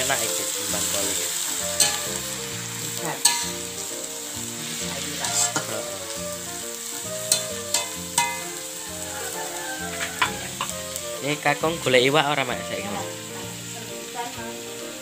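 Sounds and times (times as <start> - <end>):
vegetables sizzling in a wok: 0.0 - 15.0
metal spatula clanking on wok: 1.8 - 2.3, 3.0 - 3.8, 5.2 - 5.8, 7.2 - 8.6, 9.8 - 10.8.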